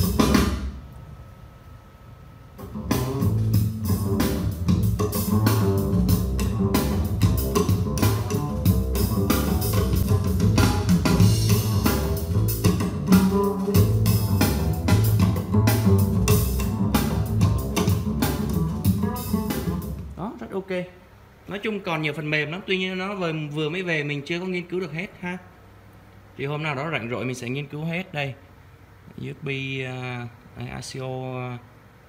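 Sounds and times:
music with drums bass and guitar: 0:00.0 - 0:00.7, 0:02.6 - 0:20.1.

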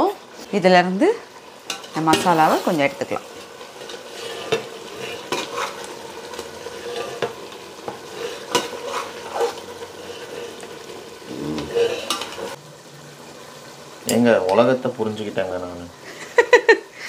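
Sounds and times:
sizzling hiss: 0:00.0 - 0:17.0
ladle scraping metal pot: 0:01.6 - 0:10.9, 0:11.5 - 0:12.6.

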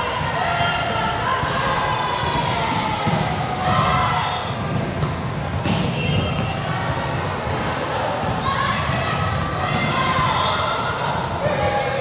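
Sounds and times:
sharp volleyball hits: 0:00.1 - 0:11.7.

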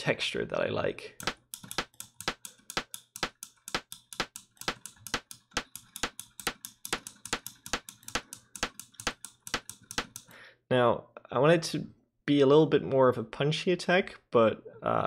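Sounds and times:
short sharp clicky percussion hits: 0:01.2 - 0:10.3.

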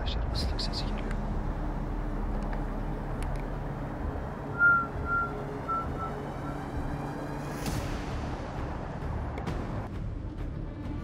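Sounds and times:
high whistle-like notes: 0:04.5 - 0:06.9.

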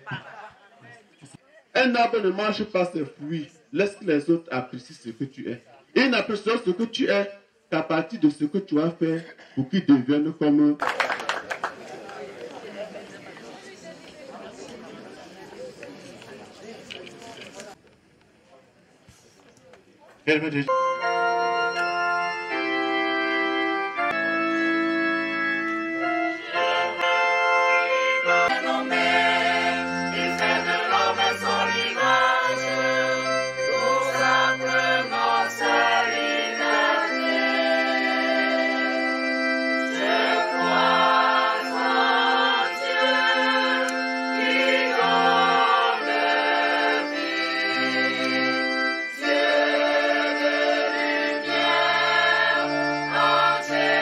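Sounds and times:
electronic organ chords: 0:20.3 - 0:54.0
choir singing a hymn: 0:21.1 - 0:54.0.

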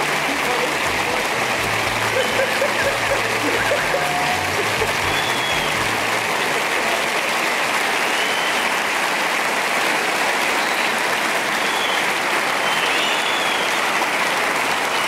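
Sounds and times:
studio audience applauding: 0:00.0 - 0:15.0.

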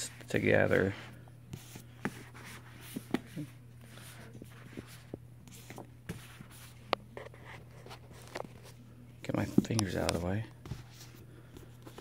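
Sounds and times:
steady low hum: 0:00.0 - 0:12.0
books tapping and rustling: 0:01.6 - 0:03.5, 0:09.3 - 0:12.0.

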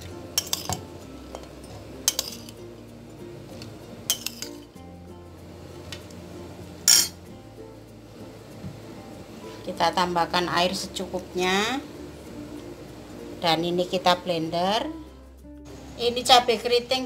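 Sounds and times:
soft background music: 0:00.0 - 0:17.0
metal spoon clinking glass: 0:00.4 - 0:02.6, 0:04.1 - 0:04.7, 0:06.8 - 0:07.2.

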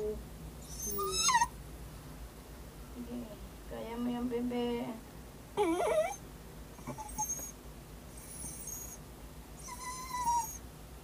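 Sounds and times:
dog whimpering and whining: 0:00.6 - 0:01.5, 0:05.6 - 0:06.2, 0:06.8 - 0:09.0, 0:09.6 - 0:10.6.

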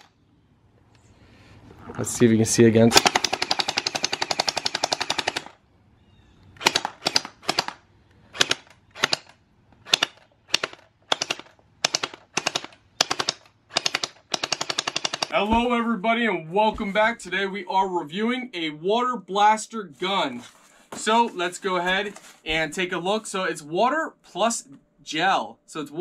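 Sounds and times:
gel ball blaster firing bursts: 0:02.9 - 0:05.6, 0:06.6 - 0:15.4.

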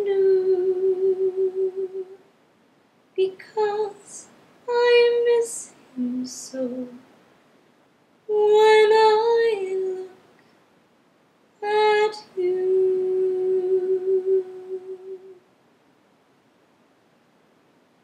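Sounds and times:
woman singing a cappella: 0:00.0 - 0:02.2, 0:03.2 - 0:07.1, 0:08.3 - 0:10.3, 0:11.6 - 0:15.4.

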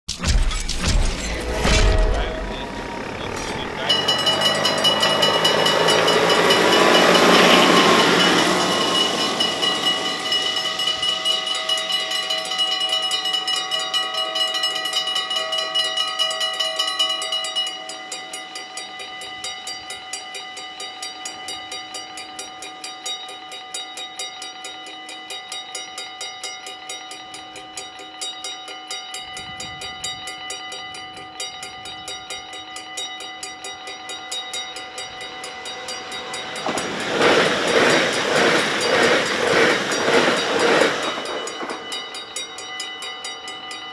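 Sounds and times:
level-crossing warning bells: 0:00.1 - 0:43.9
train rushing past: 0:00.2 - 0:12.6, 0:33.9 - 0:43.9.

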